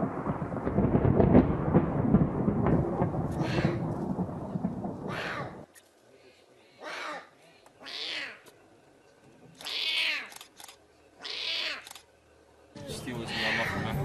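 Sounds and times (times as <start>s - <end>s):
lion cub mewing: 6.8s - 8.5s, 9.6s - 10.4s, 11.2s - 12.0s, 13.3s - 13.8s.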